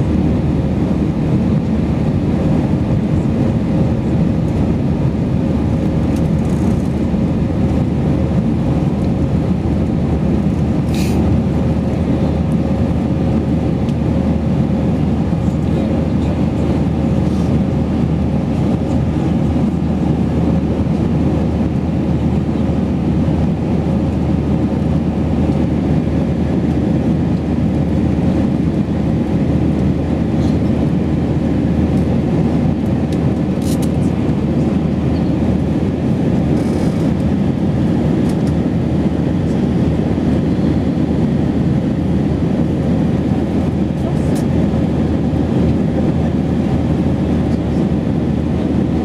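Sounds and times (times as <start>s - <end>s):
jet engines and rushing air: 0.0s - 49.0s.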